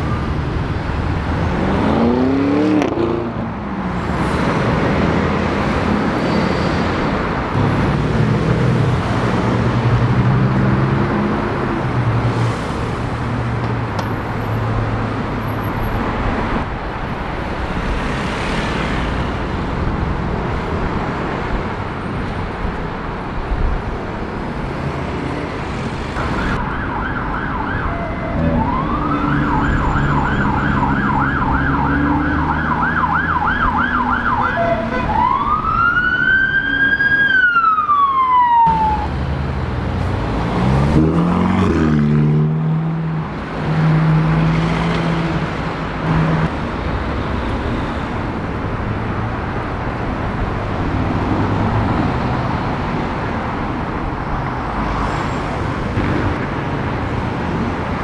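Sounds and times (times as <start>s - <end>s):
emergency vehicle siren: 0.0s - 1.2s, 26.1s - 39.2s
street traffic noise: 0.0s - 58.0s
engine revving: 1.2s - 3.5s, 40.0s - 43.1s.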